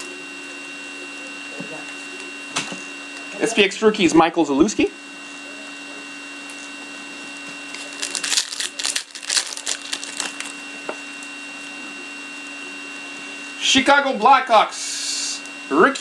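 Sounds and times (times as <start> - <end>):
electrical hum: 0.0 - 16.0
foil pack crinkling and tearing: 7.6 - 10.6.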